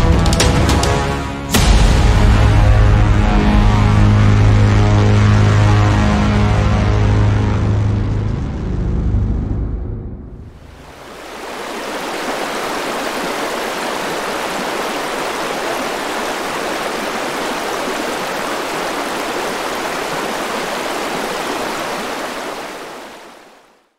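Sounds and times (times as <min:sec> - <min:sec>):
water rushing: 0:10.4 - 0:23.9.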